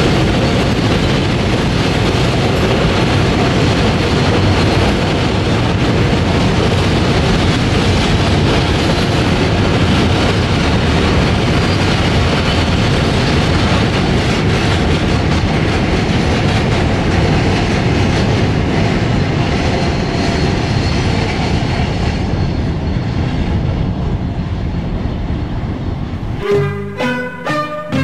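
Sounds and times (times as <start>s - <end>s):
train wagons rolling on rails: 0.0s - 25.2s
music: 26.2s - 28.0s.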